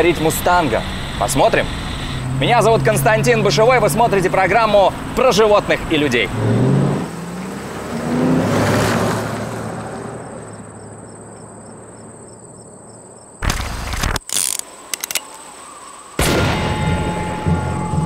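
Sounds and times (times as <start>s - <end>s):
car driving on gravel: 0.0s - 14.9s
insects chirping: 0.0s - 18.0s
sharp cracks: 13.4s - 15.4s
loud boom: 16.2s - 18.0s
music: 16.4s - 18.0s.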